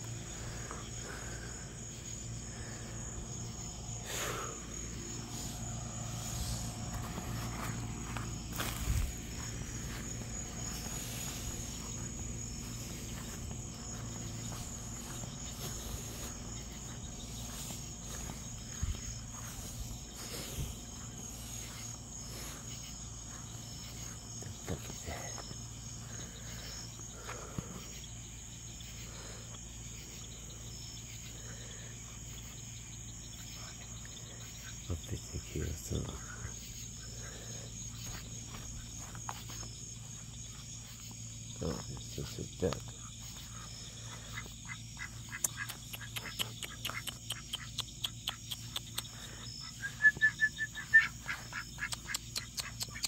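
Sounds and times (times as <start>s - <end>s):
low hum: 0.0s - 30.6s
crickets chirping: 0.0s - 53.0s.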